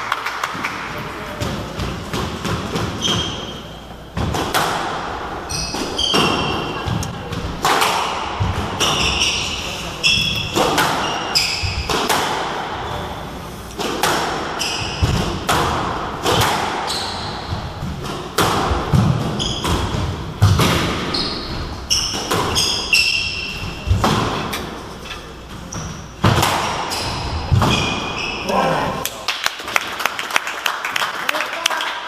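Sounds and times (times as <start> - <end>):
shoes squeaking on wooden floor: 5.5 - 7.0, 19.3 - 20.0
squash ball thwacks: 5.7 - 9.1, 11.7 - 12.5, 13.8 - 16.9, 17.6 - 21.1, 26.2 - 26.9.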